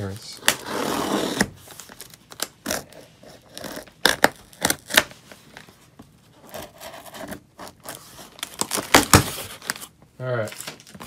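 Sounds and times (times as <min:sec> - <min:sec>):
packing tape scraped and slit: 0:00.4 - 0:05.3, 0:06.4 - 0:09.9.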